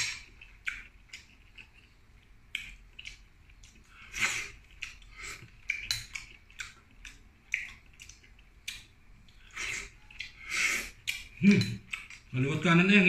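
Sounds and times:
wet chewing and smacking: 0.0s - 12.4s
slurping: 3.8s - 8.2s, 9.3s - 12.3s.

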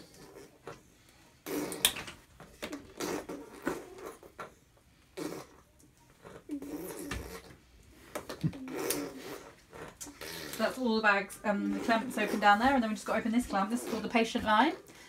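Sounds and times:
baby blowing raspberries: 1.4s - 2.0s, 2.6s - 10.8s.

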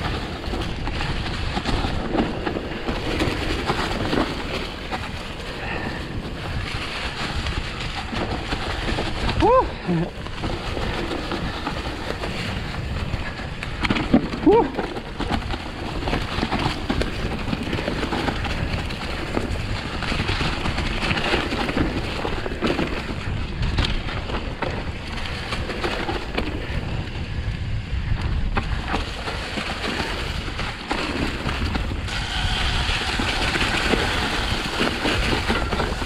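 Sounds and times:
bike rumbling on dirt trail: 0.0s - 36.0s
wind buffeting microphone: 0.0s - 36.0s.

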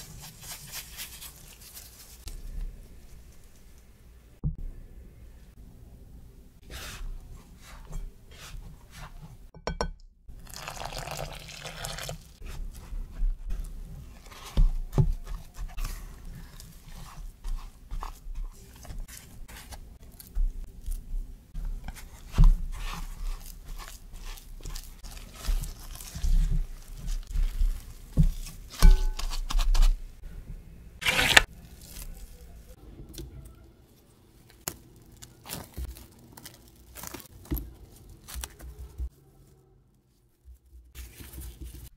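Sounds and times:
hands squeezing dough: 0.0s - 4.1s, 10.3s - 30.3s, 31.0s - 41.9s
milk pouring: 10.4s - 12.4s.

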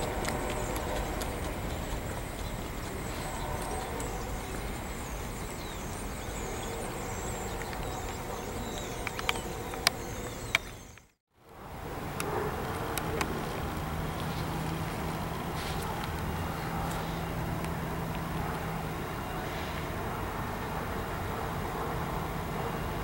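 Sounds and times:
sharp clicks: 7.5s - 11.2s.

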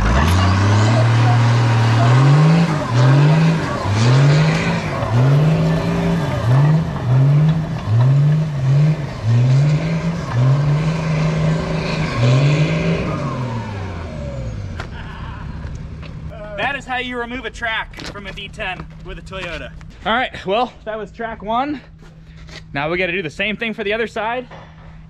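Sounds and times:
diesel engine revving under load: 0.0s - 16.3s.

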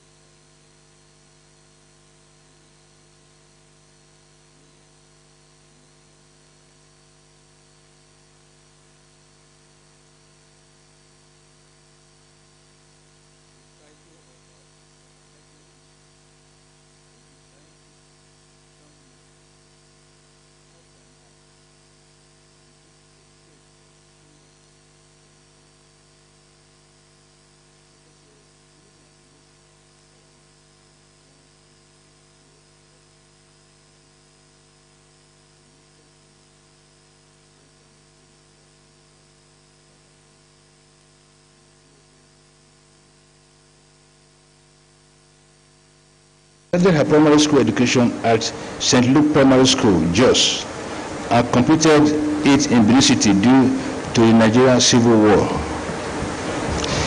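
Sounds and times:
electrical mains hum: 0.0s - 57.0s
faint high wavering whine: 0.0s - 57.0s.

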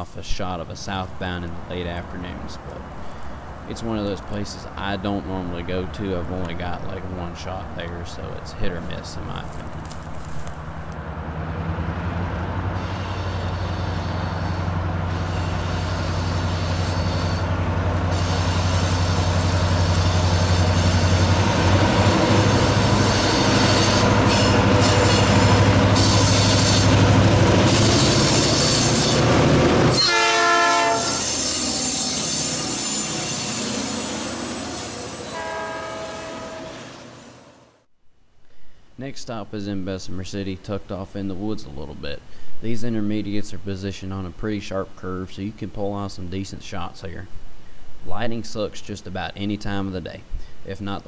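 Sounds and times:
diesel locomotive engine drone: 0.0s - 37.9s
train passing close: 0.0s - 37.9s
train horn: 29.9s - 33.5s, 34.9s - 37.6s.

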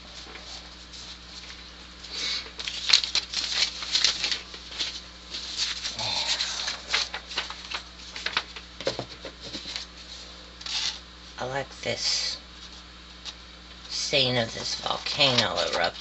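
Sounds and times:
paper rustling and crinkling: 0.0s - 11.0s, 14.4s - 16.0s.

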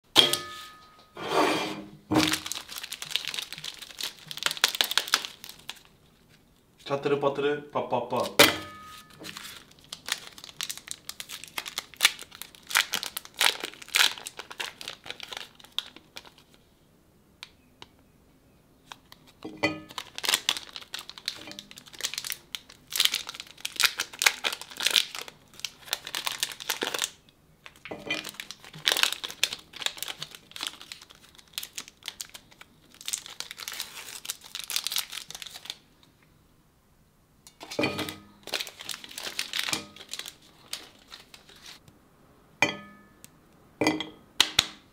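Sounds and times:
plastic wrappers crinkling and tearing: 2.2s - 7.0s, 8.1s - 16.6s, 18.8s - 35.9s, 37.6s - 41.8s.

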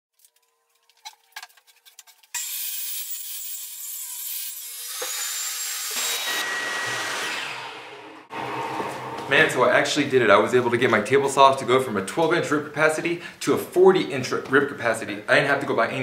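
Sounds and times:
table saw ripping wood: 0.2s - 9.6s.

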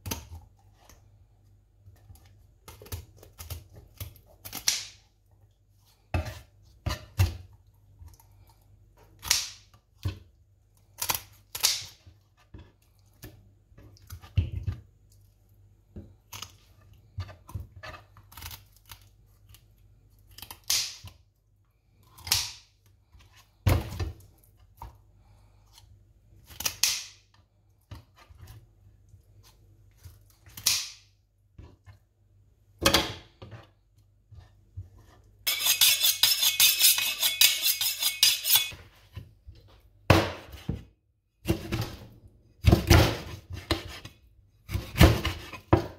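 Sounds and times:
knife cutting fish fins: 35.5s - 38.8s.

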